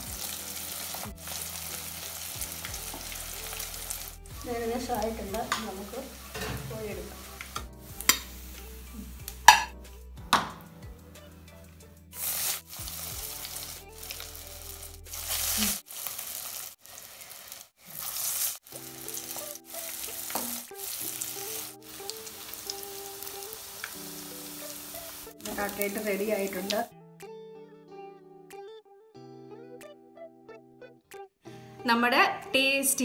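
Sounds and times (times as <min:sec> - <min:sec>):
meat deep-frying in hot oil: 0:00.0 - 0:06.4, 0:12.2 - 0:26.9.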